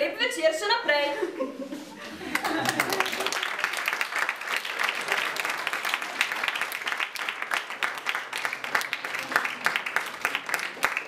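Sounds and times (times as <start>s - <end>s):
audience applauding: 2.3s - 11.0s.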